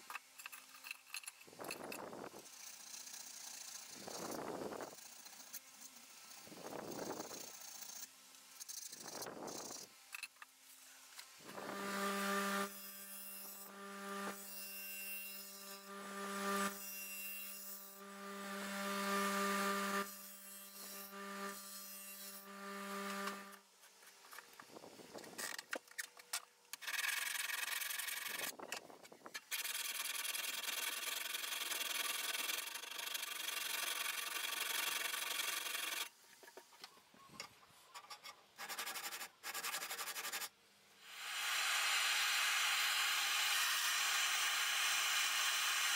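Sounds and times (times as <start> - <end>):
bench grinder humming: 11.5 - 12.7, 15.4 - 16.9, 17.7 - 23.6.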